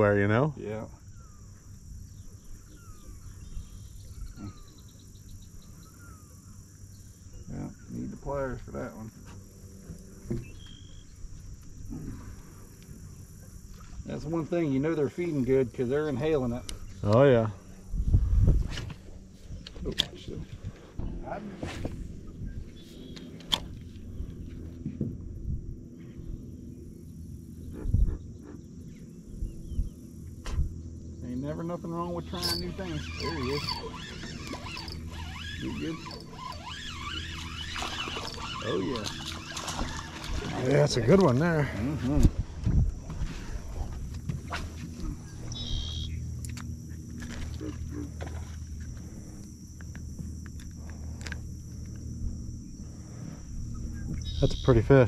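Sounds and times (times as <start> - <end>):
faint high insect drone: 0.0 - 55.0
low rumbly noise: 0.0 - 55.0
high insect buzzing: 29.6 - 40.5
quick run of ticks: 33.4 - 36.8.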